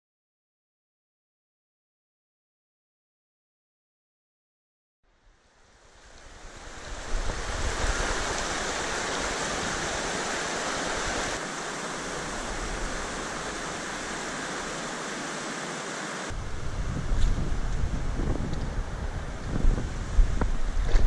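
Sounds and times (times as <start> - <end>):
stream running over rocks: 5.6 - 21.0.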